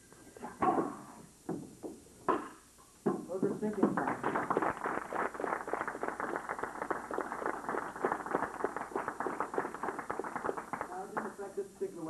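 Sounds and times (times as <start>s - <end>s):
people applauding: 3.8s - 11.5s.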